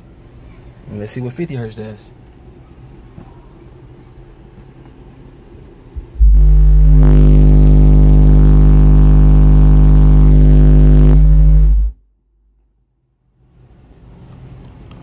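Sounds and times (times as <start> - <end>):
loud buzzing test tone: 6.0 - 12.0.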